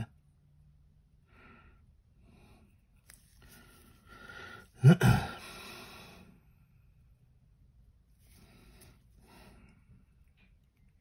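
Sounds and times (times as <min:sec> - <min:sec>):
man drawing breath: 0:01.3 - 0:06.5
man sneezing loudly: 0:04.8 - 0:05.6.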